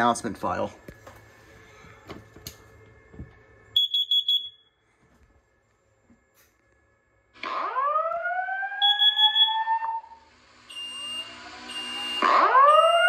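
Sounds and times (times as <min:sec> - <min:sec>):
alarm whoop tone: 0:07.6 - 0:13.0
high electronic beep: 0:08.8 - 0:09.8, 0:10.7 - 0:13.0.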